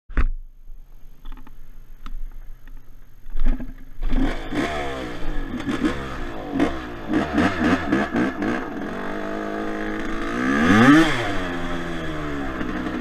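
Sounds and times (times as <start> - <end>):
quad bike engine revving: 4.0 - 13.0.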